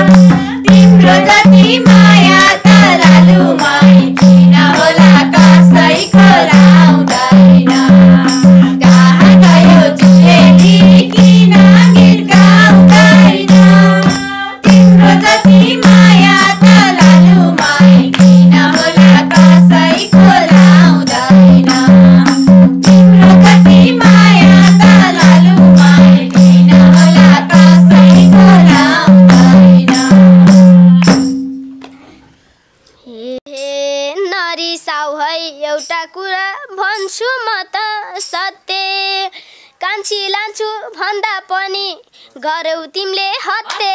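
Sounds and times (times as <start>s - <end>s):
women singing folk song: 0.0s - 31.0s
rhythmic hand clapping: 0.0s - 31.5s, 43.6s - 43.9s
boy's voice: 33.0s - 43.9s.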